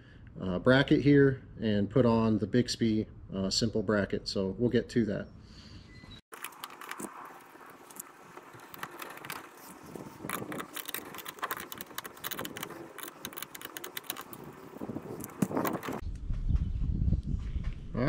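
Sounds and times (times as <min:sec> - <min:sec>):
small metallic clicks and rattles: 0:06.3 - 0:16.0.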